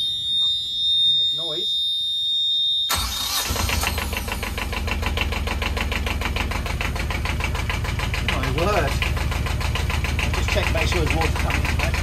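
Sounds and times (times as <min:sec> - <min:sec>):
alarm buzzer: 0:00.0 - 0:04.0
diesel engine starting and idling: 0:02.9 - 0:12.0.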